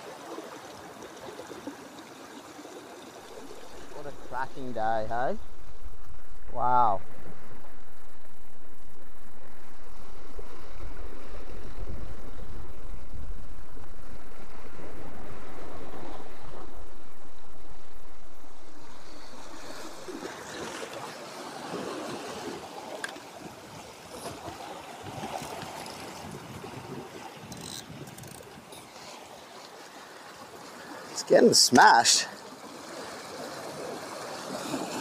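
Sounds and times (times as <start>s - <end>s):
waves washing against rocks: 18.6s - 35.0s
wind buffeting microphone: 23.3s - 28.8s.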